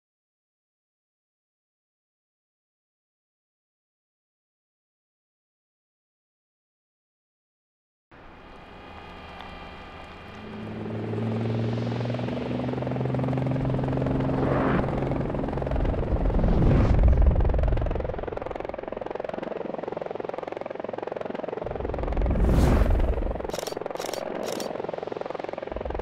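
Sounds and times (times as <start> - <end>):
fast helicopter rotor chop: 8.2 - 26.0
swooshing fly-bys: 21.7 - 26.0.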